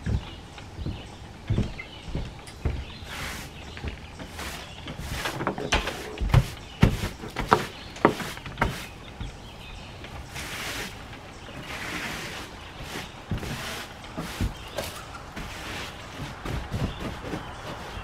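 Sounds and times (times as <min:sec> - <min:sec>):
broom knocking on boards: 0:02.6 - 0:09.4, 0:11.6 - 0:18.0
broom bristles swishing: 0:02.6 - 0:09.5, 0:10.2 - 0:18.0.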